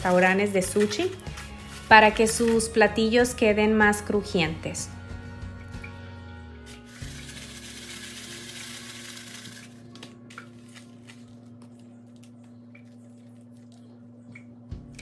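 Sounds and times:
steady low hum: 9.4 - 15.0.

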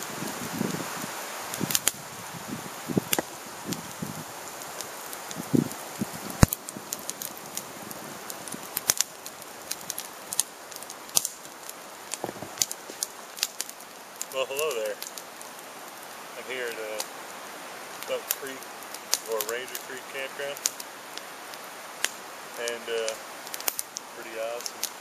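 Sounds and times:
campfire crackling: 0.0 - 25.0
sharp pops and snaps: 1.5 - 2.0, 3.0 - 17.1, 17.9 - 25.0
soft low thumps: 12.2 - 12.6.

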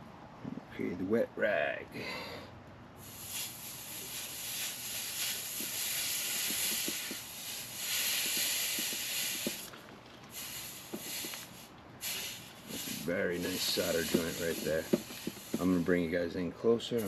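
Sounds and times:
wet rag hissing on hot pipe: 3.0 - 9.7, 10.3 - 16.2.

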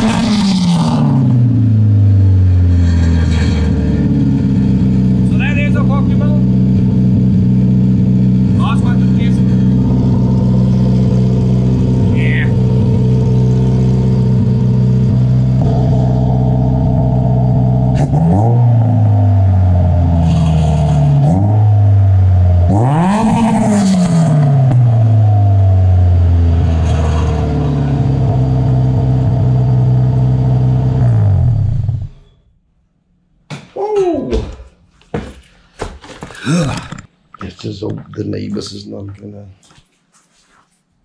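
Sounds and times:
car engine idling and revving: 0.0 - 32.3.

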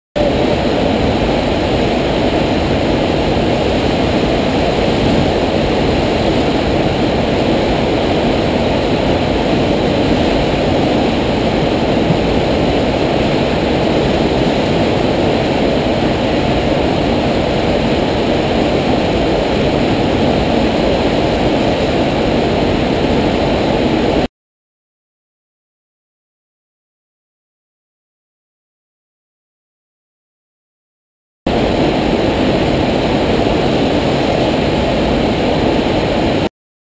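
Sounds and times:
pumped water rushing: 0.2 - 24.2.

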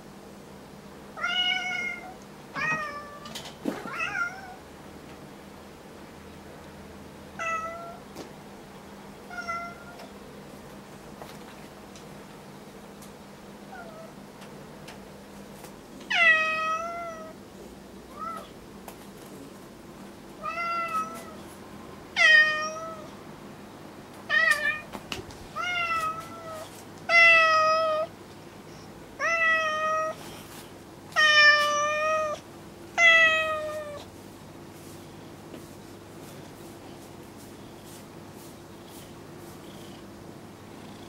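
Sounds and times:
steady room hum: 0.0 - 41.0
cat meowing: 29.2 - 30.2, 31.2 - 32.4, 33.0 - 34.1.

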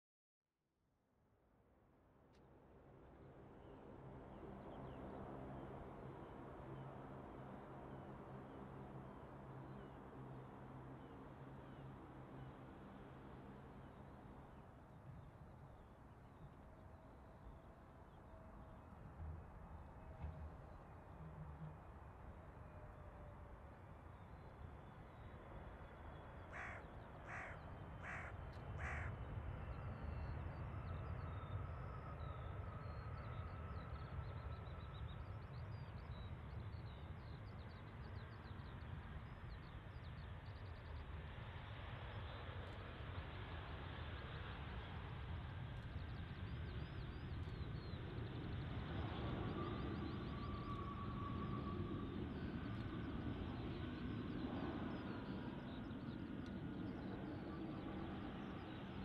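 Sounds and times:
faint engine whine: 1.6 - 59.0
bird calling: 26.5 - 29.1.

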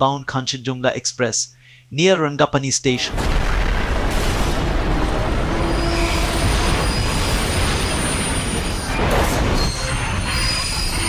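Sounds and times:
railway wagons colliding and derailing: 3.1 - 11.0.

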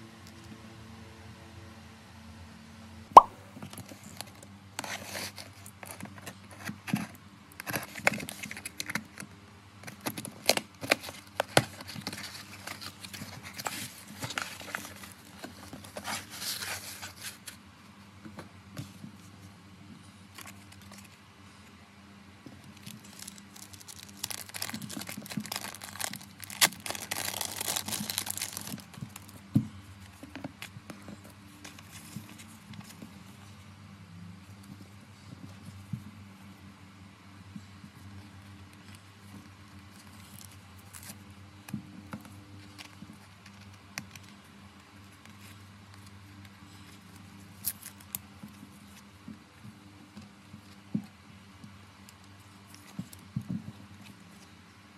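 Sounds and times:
plastic sleeves and cards rustling: 9.8 - 17.6, 22.6 - 33.1
packaging crinkling and tearing: 22.6 - 29.4
tape peeled off cardboard box: 23.1 - 28.9.

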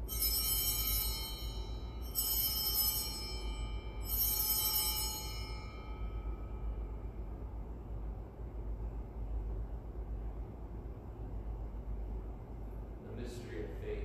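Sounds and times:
altar bells ringing: 0.0 - 7.2.

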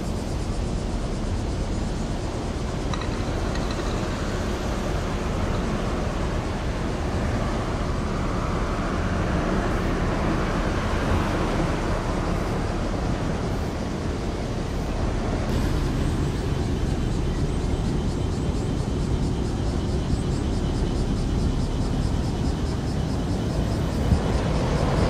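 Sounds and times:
even noise haze: 0.0 - 25.0
steady low rumble: 9.8 - 25.0.

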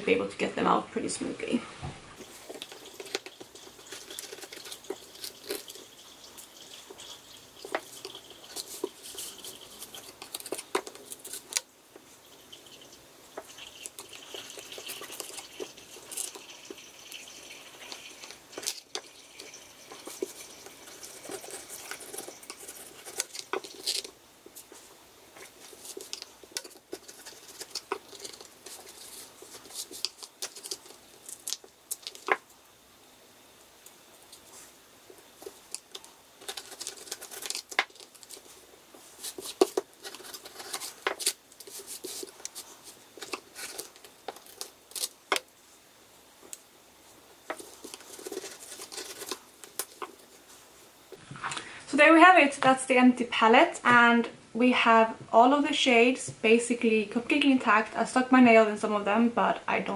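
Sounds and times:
knife scraping cardboard: 39.2 - 43.9, 47.5 - 49.4.

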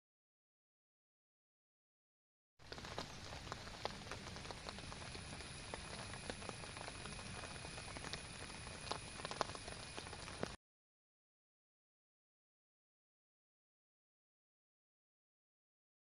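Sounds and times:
rain on plants: 2.6 - 10.6.

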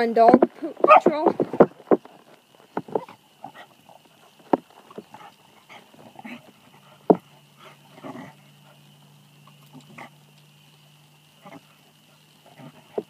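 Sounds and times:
low steady hum: 0.0 - 13.0
dogs play-fighting: 0.7 - 10.3.

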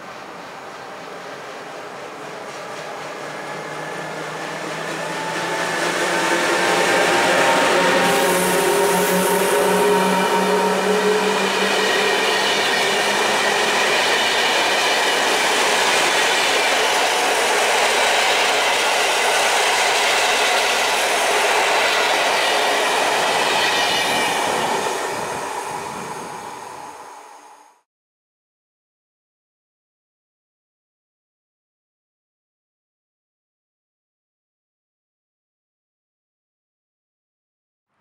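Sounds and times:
train wheels rushing on rails: 0.0 - 27.8
clickety-clack over rail joints: 0.2 - 8.0.

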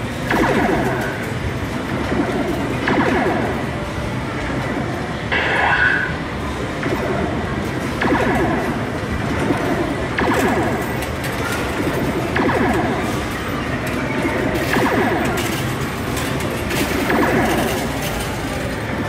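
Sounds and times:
arcade machines electronic music: 0.0 - 19.0
burst of effects with clicks: 2.1 - 3.7, 6.8 - 10.8, 11.8 - 13.2.

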